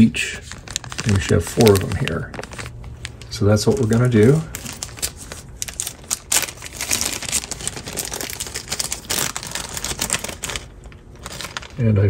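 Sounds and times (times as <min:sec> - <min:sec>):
crinkling rustle: 0:00.2 - 0:12.0.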